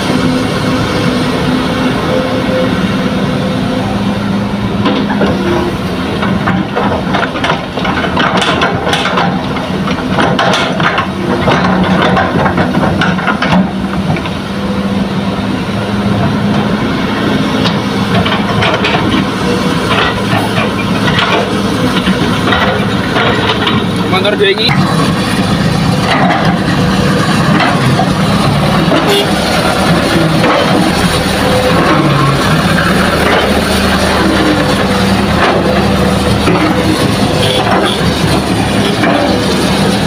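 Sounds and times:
excavator diesel engine running: 0:00.0 - 0:40.0
soil and stones clattering: 0:06.2 - 0:14.4, 0:17.6 - 0:40.0.

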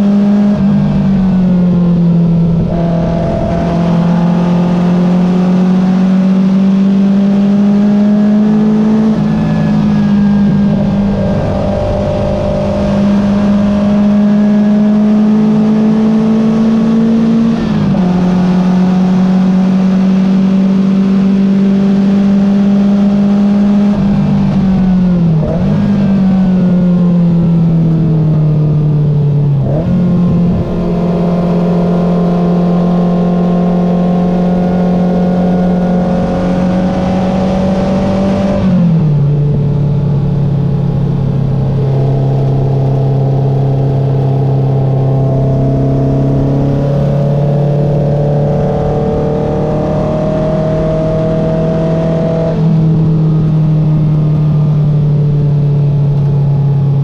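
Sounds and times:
race car engine accelerating: 0:00.0 - 0:57.0
throttle blips on downshifts: 0:00.0 - 0:57.0.

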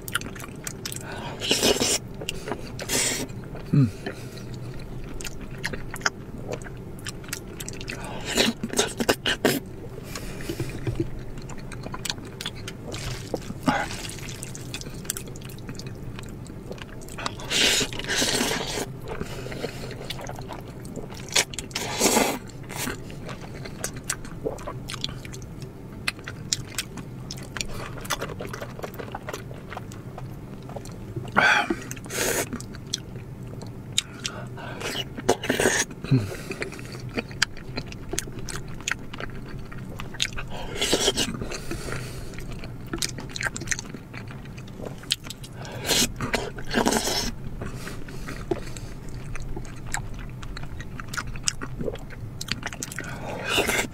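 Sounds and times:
chewing: 0:00.0 - 0:53.9
slurping noodles: 0:01.3 - 0:03.3, 0:12.9 - 0:15.0, 0:17.2 - 0:20.4, 0:21.7 - 0:23.0, 0:40.6 - 0:42.0, 0:45.6 - 0:48.8, 0:52.9 - 0:53.9.

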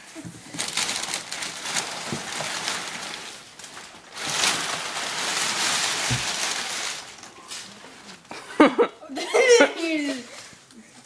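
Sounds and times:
packing paper rustling: 0:00.0 - 0:08.4.

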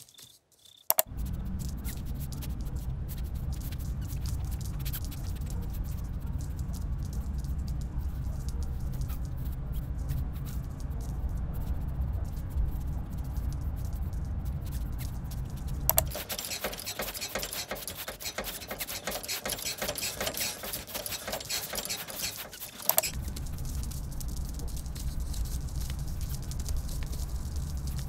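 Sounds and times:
small feet pattering on wood: 0:13.2 - 0:28.0
low hum: 0:23.0 - 0:28.0.

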